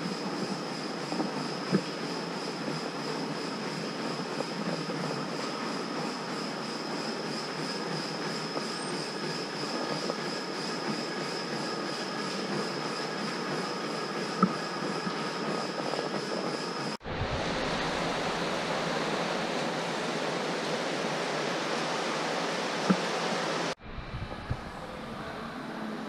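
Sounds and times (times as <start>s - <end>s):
indoor room noise rushing: 0.0s - 26.0s
faint high hum: 14.4s - 26.0s.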